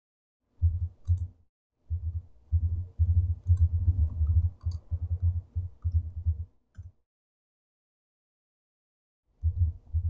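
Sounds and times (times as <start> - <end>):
typing on keyboard: 1.0 - 1.3, 3.4 - 6.1.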